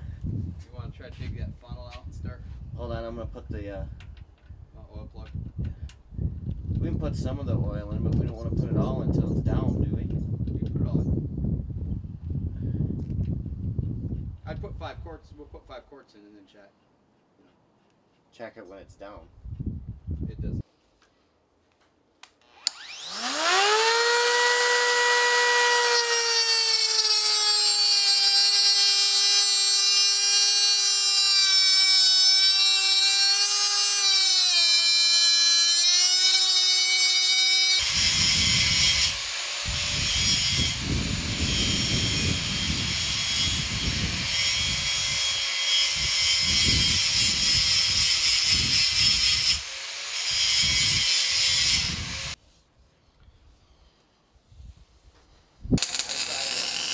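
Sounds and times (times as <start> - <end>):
angle grinder whining: 22.4 - 52.4, 55.8 - 56.9
grinding disc on metal: 55.8 - 56.9.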